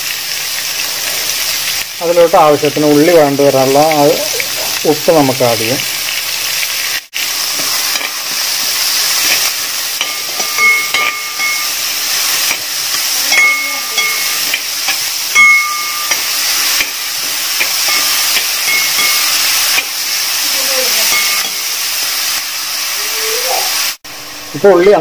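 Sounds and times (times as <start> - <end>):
onions sizzling in oil: 0.0 - 25.0
steel ladle scraping metal pan: 7.5 - 20.0, 20.6 - 21.9.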